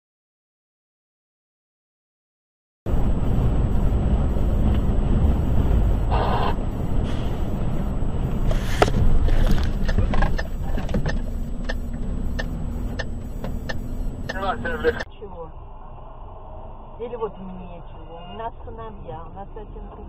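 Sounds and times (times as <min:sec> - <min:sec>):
short pitched tone: 0:02.9 - 0:15.0
truck engine and road noise: 0:02.9 - 0:20.0.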